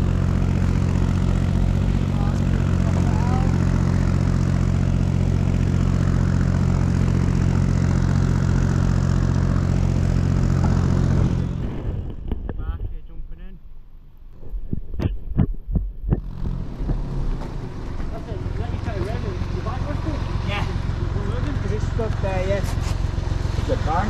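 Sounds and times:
engine idling: 0.0s - 12.6s, 16.1s - 24.0s.

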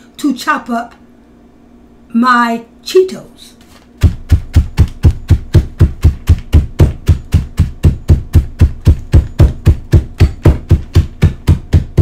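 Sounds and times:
hammer pounding snacks in a bag: 4.0s - 12.0s.

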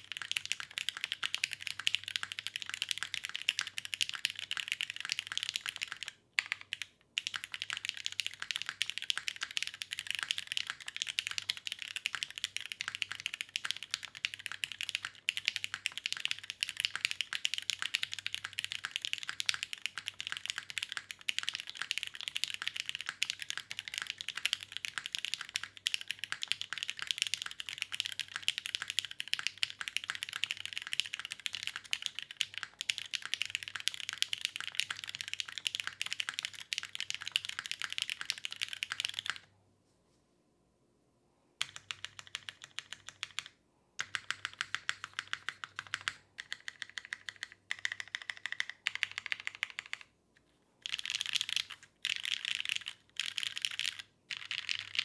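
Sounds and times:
mechanical keyboard typing: 0.0s - 39.5s, 41.6s - 50.1s, 50.8s - 55.0s.

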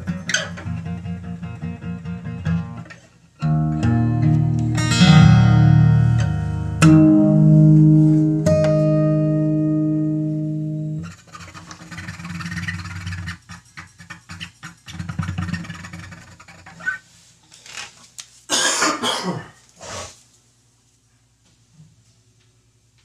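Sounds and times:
guitar chord: 3.4s - 11.0s.

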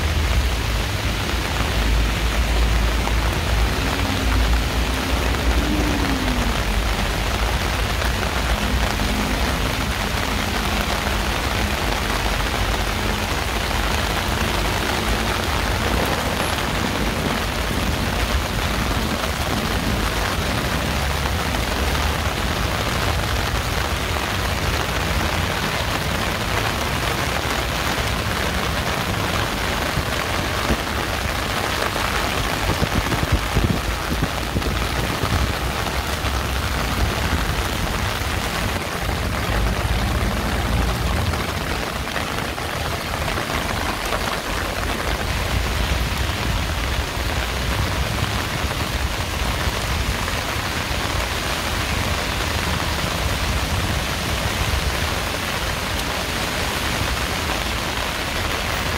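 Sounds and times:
heavy rain hiss: 0.0s - 58.9s.

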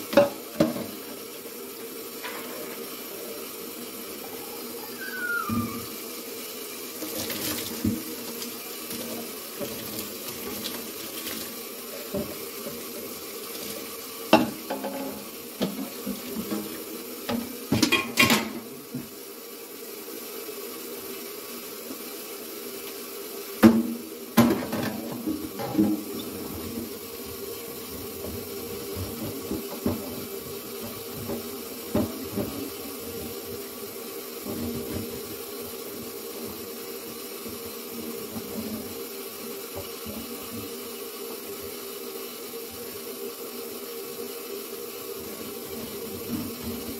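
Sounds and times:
tap running into sink: 0.0s - 1.2s, 7.0s - 19.2s, 23.6s - 27.0s, 27.8s - 33.6s, 37.4s - 39.0s, 39.7s - 40.8s, 45.3s - 46.9s.

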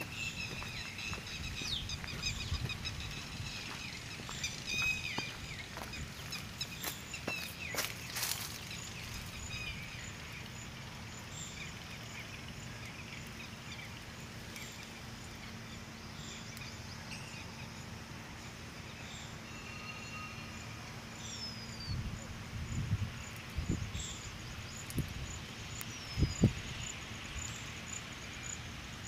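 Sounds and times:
faint bird chirps: 18.9s - 22.4s.

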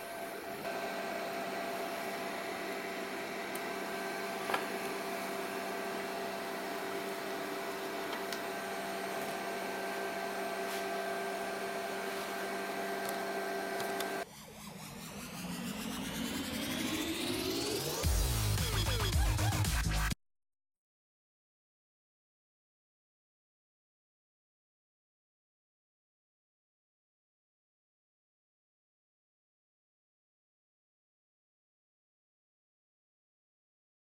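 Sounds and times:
induction heater humming and whining: 0.0s - 14.3s
electronic music with rising sweep: 12.9s - 20.2s.

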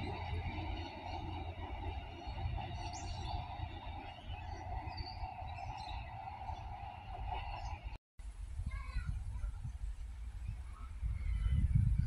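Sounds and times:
birds chirping: 0.0s - 8.0s
diesel railcars rumbling: 0.0s - 8.0s.

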